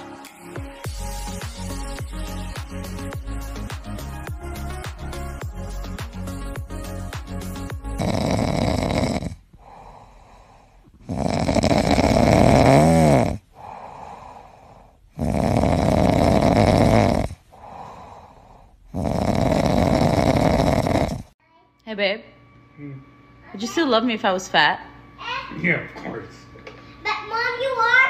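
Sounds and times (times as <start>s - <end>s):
dog snoring: 7.7s - 18.2s, 18.9s - 21.4s.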